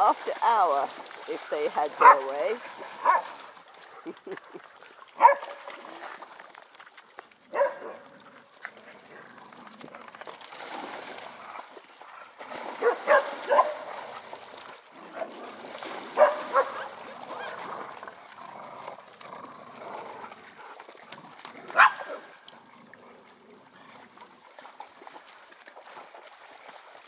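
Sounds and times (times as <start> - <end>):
water splashing: 0.0 - 27.0
dogs barking: 2.0 - 2.3, 3.0 - 3.4, 5.2 - 5.6, 7.5 - 8.1, 12.8 - 13.8, 16.2 - 17.6, 21.7 - 22.2.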